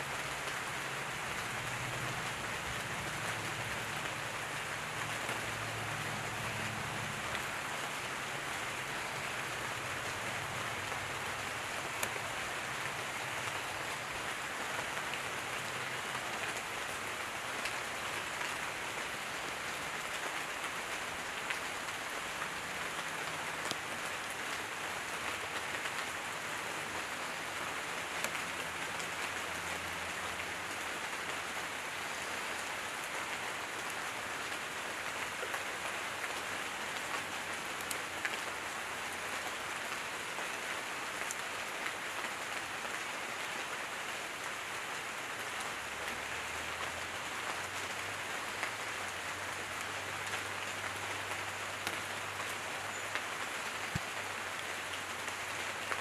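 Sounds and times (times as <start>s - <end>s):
light rain on leaves: 0.0s - 56.0s
single raindrops ticking: 11.9s - 12.2s.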